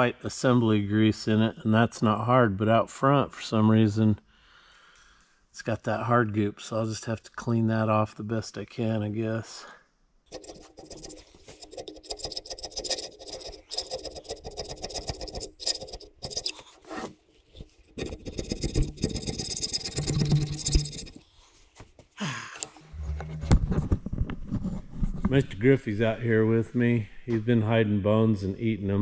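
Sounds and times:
hand scraping sealant off metal: 10.3s - 21.3s.

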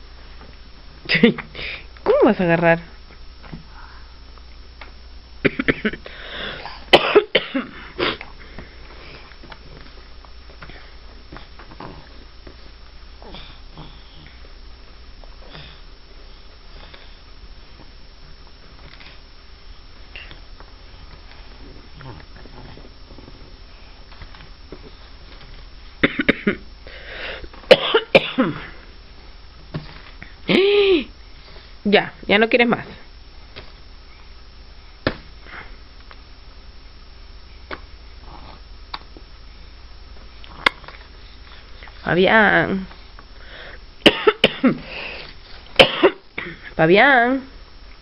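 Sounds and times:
person coughing: 5.4s - 6.0s, 6.6s - 8.3s, 26.0s - 26.6s, 27.7s - 28.7s, 44.0s - 44.8s, 45.8s - 46.7s.

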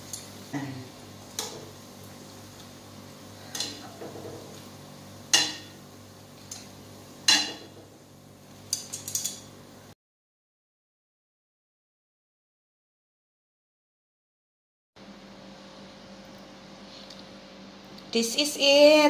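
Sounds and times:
metal tongs clinking on pan: 0.0s - 0.4s, 3.5s - 3.9s, 5.3s - 5.7s, 6.5s - 6.7s, 7.3s - 7.7s, 8.7s - 9.5s
oil sizzling: 0.0s - 10.0s.

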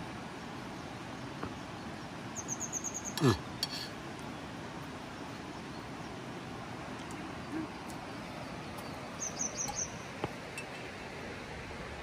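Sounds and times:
river rushing: 0.0s - 12.0s
small bird chirping: 2.4s - 3.2s, 7.0s - 10.2s.

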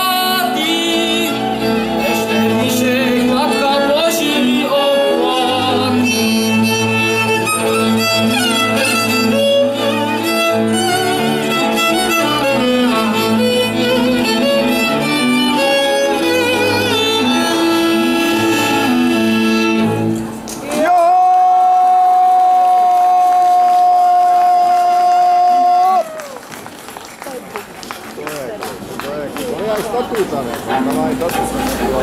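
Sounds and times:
double bass: 0.0s - 20.4s
fiddles: 0.6s - 20.2s
clarinet: 4.8s - 20.2s.

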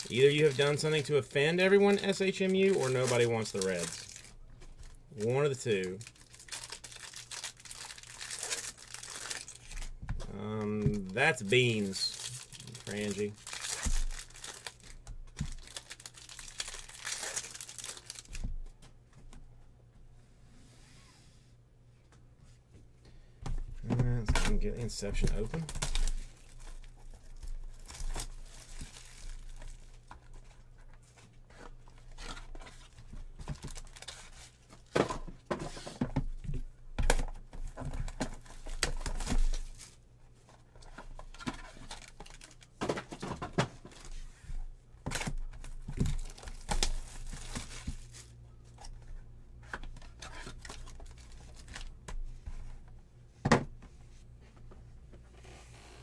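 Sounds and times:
plastic wrapping crinkling and tearing: 0.0s - 18.4s, 25.5s - 30.6s, 32.7s - 34.9s, 41.2s - 42.8s, 45.0s - 49.0s.

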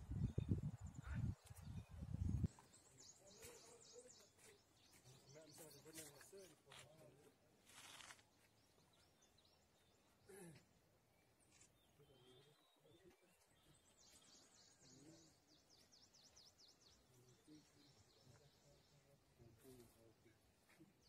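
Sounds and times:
bird chirping: 0.0s - 6.6s, 8.4s - 10.3s, 11.2s - 21.0s
rustle: 7.6s - 8.3s.

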